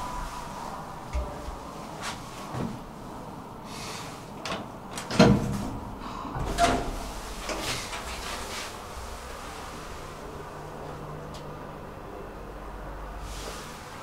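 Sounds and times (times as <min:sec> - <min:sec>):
elevator doors and mechanism clunking: 0:01.1 - 0:02.8, 0:04.4 - 0:08.8.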